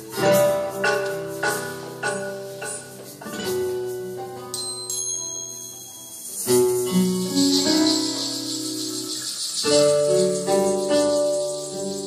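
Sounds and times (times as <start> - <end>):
acoustic guitars playing ballad: 0.0 - 12.0
jingling percussion shimmer: 0.1 - 12.0.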